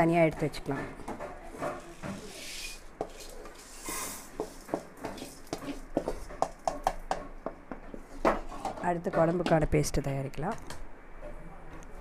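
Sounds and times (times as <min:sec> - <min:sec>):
wooden spatula scraping metal: 0:01.6 - 0:04.6.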